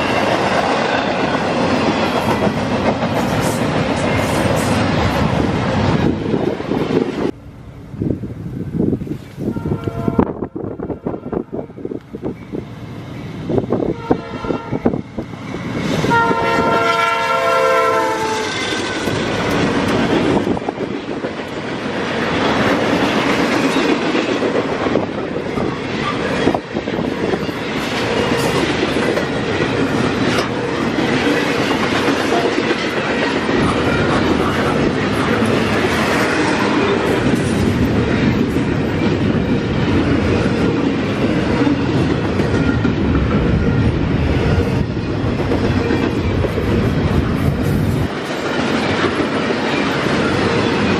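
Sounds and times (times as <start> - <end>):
sharp train clanks: 0.0 - 50.9
train wheels rumbling on rails: 0.0 - 50.9
locomotive air horn: 9.4 - 11.7, 13.9 - 14.9, 16.1 - 19.2.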